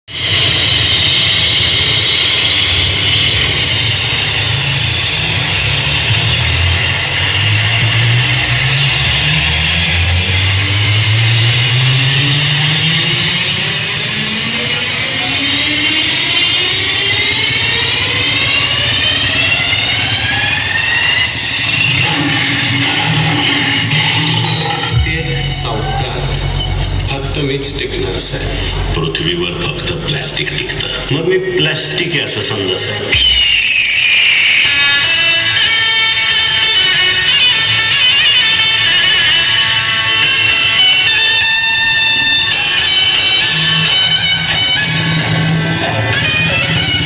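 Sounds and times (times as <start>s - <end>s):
deep bass rumble: 0.1s - 20.4s, 21.3s - 31.9s
loud hissing wash: 0.1s - 24.9s
rising jet-like sweep effect: 0.1s - 26.5s.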